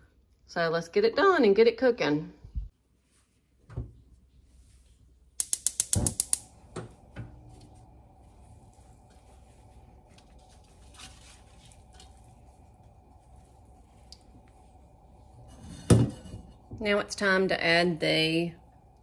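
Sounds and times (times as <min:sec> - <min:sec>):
stove igniter clicking: 0:05.4 - 0:06.9.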